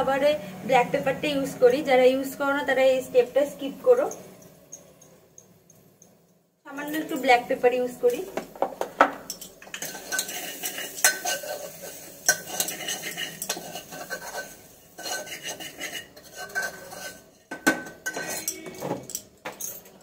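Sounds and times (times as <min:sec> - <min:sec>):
metal spoon scraping metal pot: 0:09.3 - 0:19.2.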